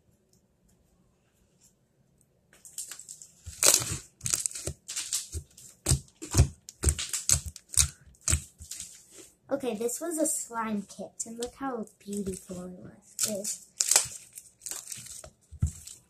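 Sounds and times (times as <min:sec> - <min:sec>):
slime sticky crackles and pops: 0:03.6 - 0:08.8, 0:13.2 - 0:16.0.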